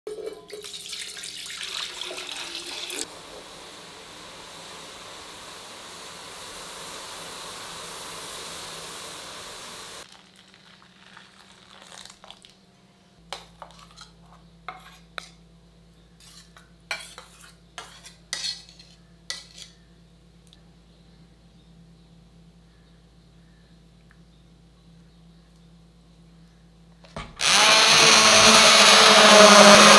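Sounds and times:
steady hiss: 0:03.0 - 0:10.1
milk splashing into pan: 0:10.0 - 0:12.6.

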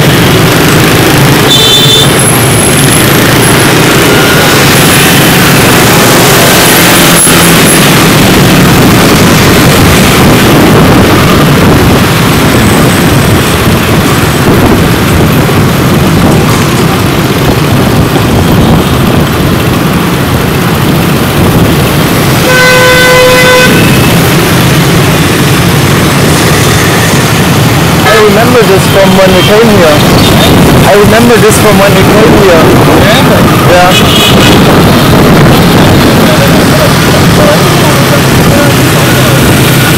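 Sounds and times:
motorcycle engine and road noise: 0:00.0 - 0:39.9
vehicle horn: 0:01.4 - 0:02.3, 0:22.4 - 0:24.2.

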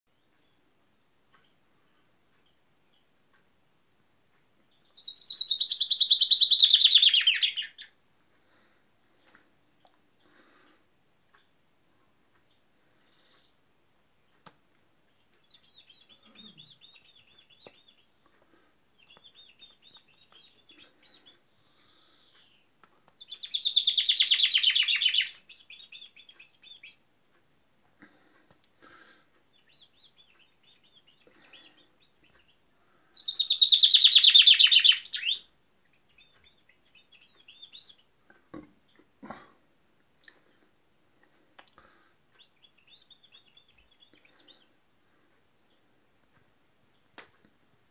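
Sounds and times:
chaffinch singing: 0:04.7 - 0:08.0, 0:14.2 - 0:27.1, 0:29.4 - 0:38.2, 0:41.8 - 0:45.9
high bird chirps: 0:04.7 - 0:08.0, 0:14.8 - 0:18.2, 0:19.0 - 0:27.0, 0:33.2 - 0:38.1.

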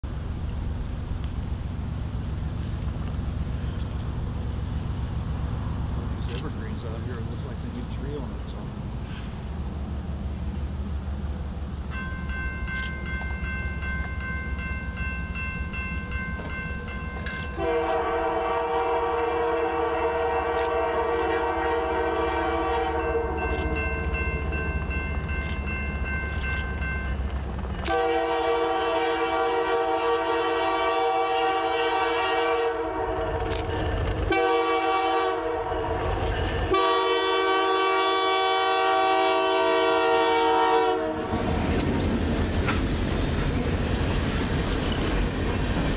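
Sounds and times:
train rumbling past: 0:00.0 - 0:45.9
locomotive air horn blasts: 0:17.4 - 0:24.2, 0:27.9 - 0:33.5, 0:34.3 - 0:41.4.

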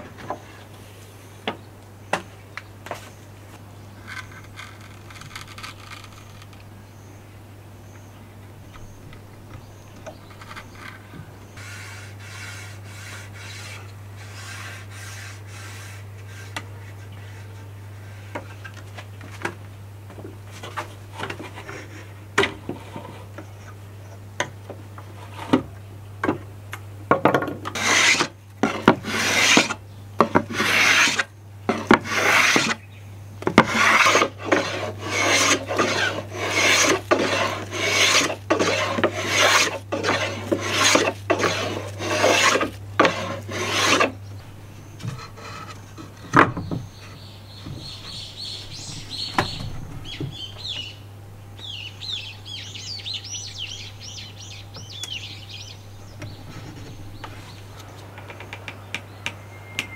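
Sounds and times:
hand tool scraping wood: 0:10.0 - 0:18.7, 0:27.4 - 0:32.8, 0:33.4 - 0:50.8.

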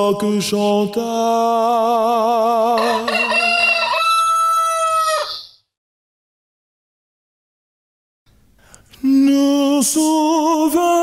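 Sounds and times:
rooster crowing: 0:02.8 - 0:05.6.

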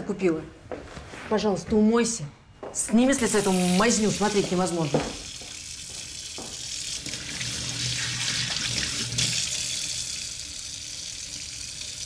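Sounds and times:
tap water running into sink: 0:03.4 - 0:12.0.

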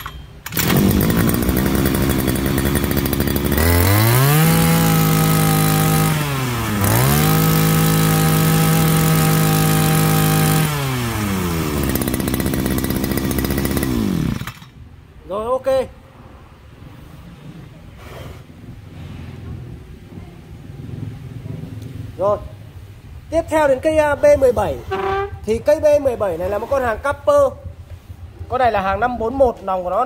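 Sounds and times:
brush cutter engine revving: 0:00.4 - 0:14.8.

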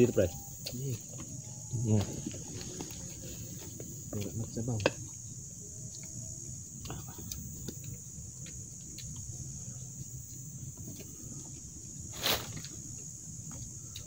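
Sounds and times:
insects droning: 0:00.0 - 0:14.0
loud rustle: 0:12.1 - 0:12.7.

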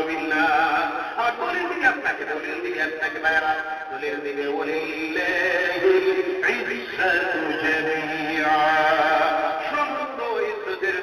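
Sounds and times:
man singing slow melody: 0:00.0 - 0:11.0.

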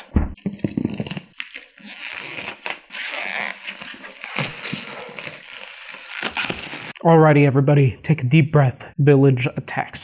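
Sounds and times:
plastic wrap crinkling: 0:00.4 - 0:07.0.

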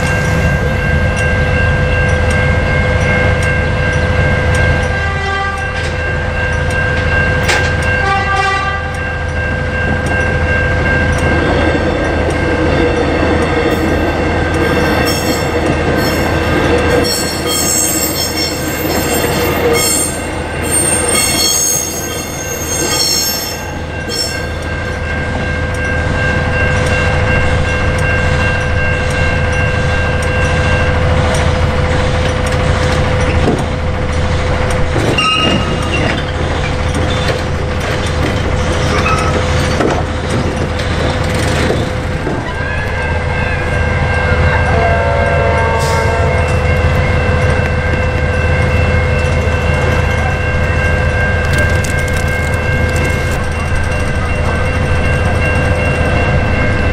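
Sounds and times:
level crossing bells ringing: 0:00.0 - 0:31.9, 0:43.0 - 0:56.9
train horn blasts: 0:04.8 - 0:05.8, 0:08.0 - 0:09.1, 0:35.2 - 0:35.9, 0:42.5 - 0:46.6
train wheels squealing: 0:17.0 - 0:24.5, 0:35.2 - 0:36.4, 0:38.7 - 0:39.6.

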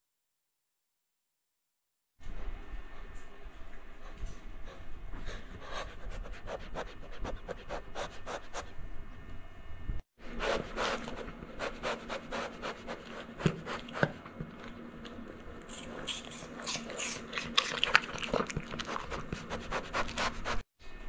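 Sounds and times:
animal sniffing: 0:04.7 - 0:08.8, 0:10.3 - 0:14.5, 0:15.7 - 0:20.6.

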